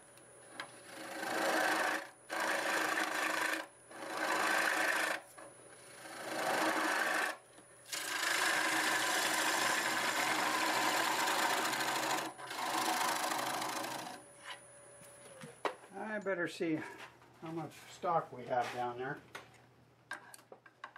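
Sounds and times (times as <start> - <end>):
gouge scraping spinning wood: 0.5 - 14.2
lathe humming: 0.5 - 15.1.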